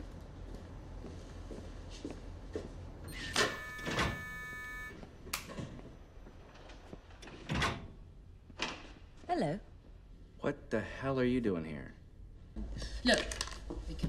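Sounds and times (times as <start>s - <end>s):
card reader clicks: 3.1s - 4.9s
electronic beep: 3.1s - 4.9s.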